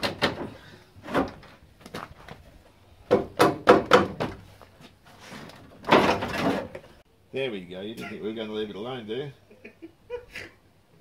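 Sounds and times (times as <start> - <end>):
plastic car panel knocking and clunking: 3.1 - 4.4.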